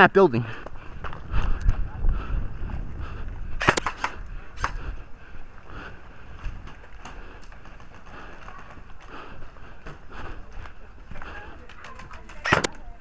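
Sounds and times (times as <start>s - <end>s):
airsoft gun shots: 3.6s - 4.8s, 12.4s - 12.7s.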